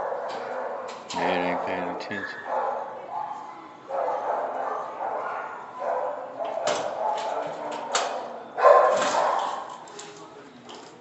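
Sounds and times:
dog barking and whining: 1.5s - 9.7s.

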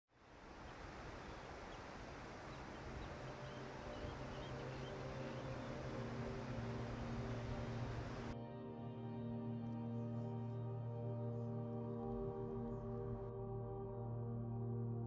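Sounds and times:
steady outdoor noise: 0.1s - 15.0s
faint bird chirps: 0.5s - 8.3s
low music drone: 2.9s - 15.0s.

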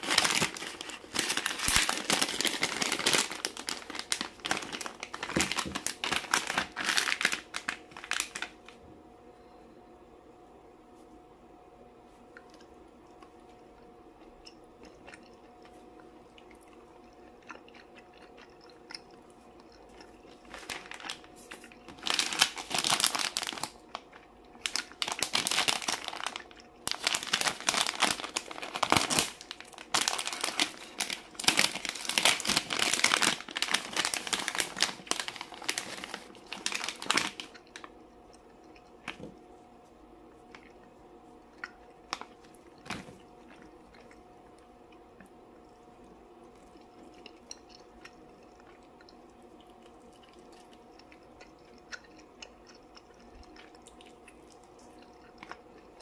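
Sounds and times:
plastic pouch crinkling: 0.0s - 8.8s, 20.4s - 37.9s.

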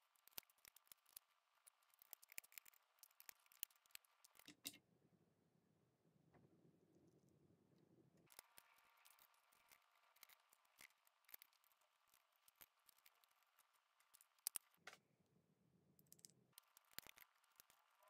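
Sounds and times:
plastic parts clicking and tapping: 8.3s - 15.0s.

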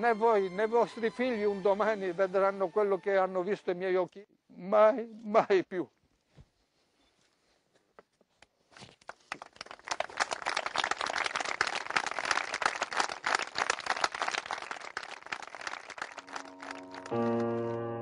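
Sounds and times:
crowd applauding: 9.3s - 18.0s.

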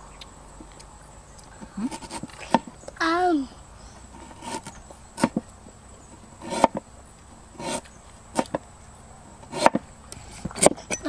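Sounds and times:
cleaver chopping root: 1.8s - 2.7s, 4.2s - 5.5s, 6.4s - 6.8s, 7.6s - 8.6s, 9.4s - 9.8s.

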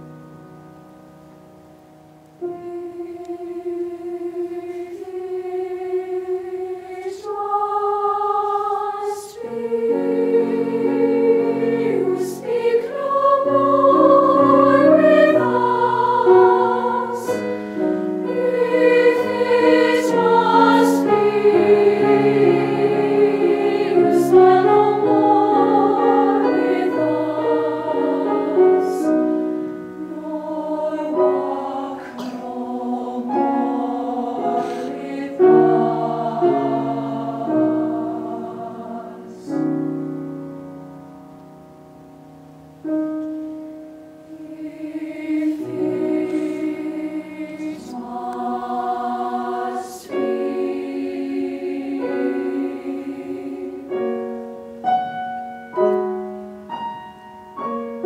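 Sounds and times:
girls' choir singing: 2.4s - 40.1s, 44.1s - 54.5s.

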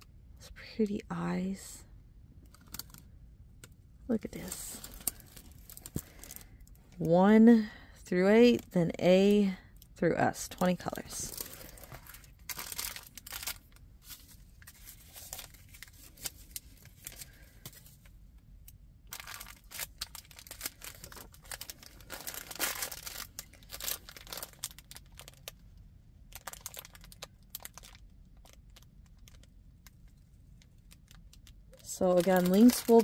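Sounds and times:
crinkly packaging crackling: 2.4s - 7.8s, 8.4s - 33.0s.

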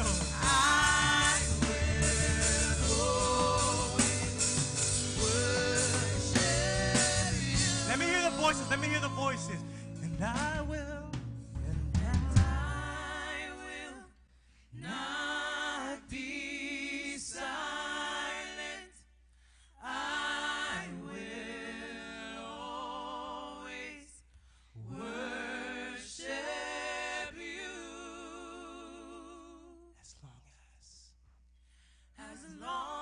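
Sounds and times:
singers singing in harmony: 0.0s - 9.7s, 12.1s - 14.2s, 14.8s - 19.0s, 19.8s - 24.2s, 24.8s - 29.7s, 32.2s - 33.0s
band low instruments: 0.0s - 13.7s.

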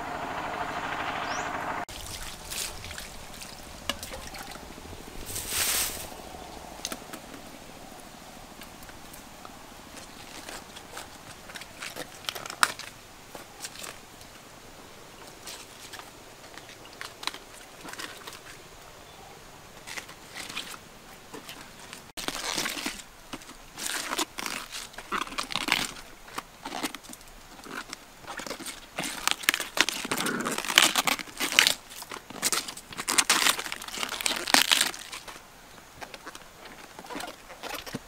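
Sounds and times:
cabbage leaves tearing: 21.4s - 35.4s.

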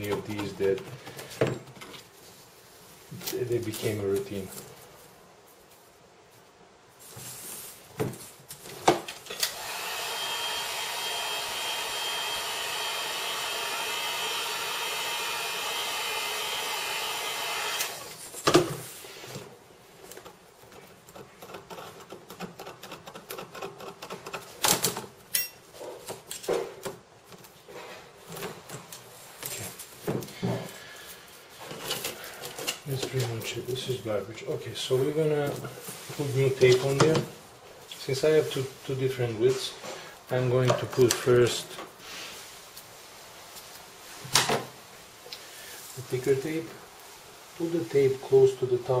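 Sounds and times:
heat gun fan whine: 8.9s - 18.6s.

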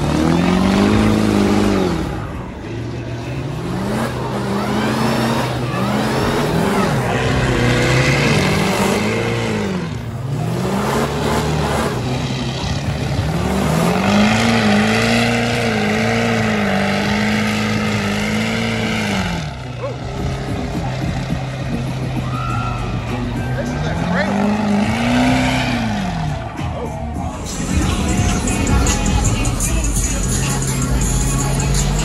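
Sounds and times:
low engine drone: 0.0s - 32.0s
truck engine revving: 0.0s - 32.0s.

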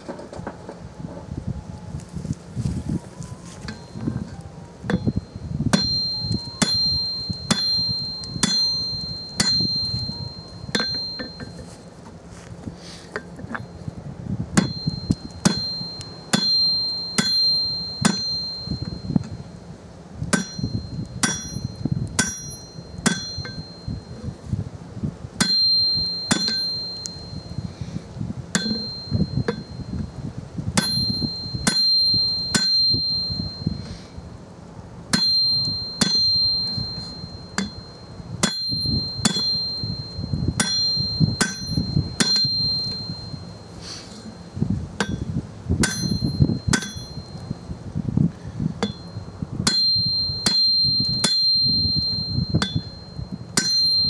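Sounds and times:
hammer ringing on anvil: 4.9s - 11.9s, 14.6s - 19.4s, 20.3s - 24.3s, 25.4s - 27.8s, 28.5s - 30.2s, 30.8s - 33.9s, 35.1s - 47.6s, 48.8s - 54.0s.

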